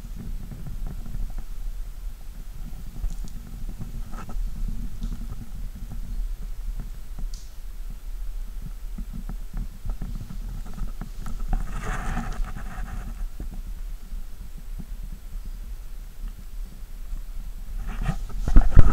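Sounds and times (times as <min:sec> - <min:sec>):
wind buffeting microphone: 0:00.0 - 0:18.9.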